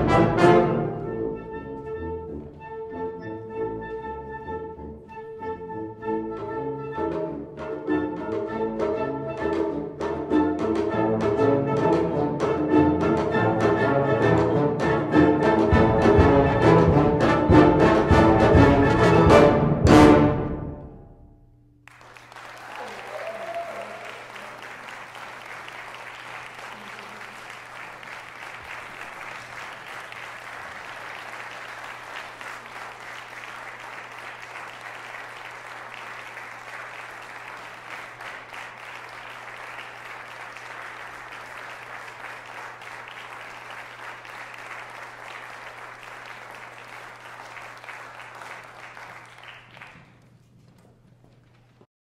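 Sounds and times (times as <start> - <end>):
crowd applauding: 21.8 - 51.9.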